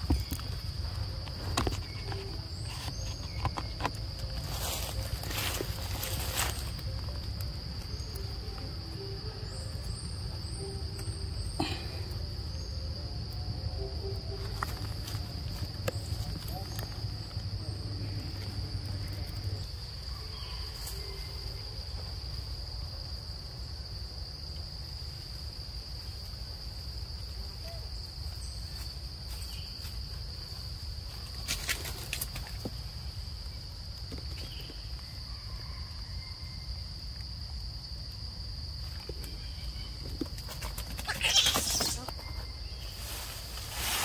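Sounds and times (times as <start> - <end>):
insects droning: 0.0 - 44.0.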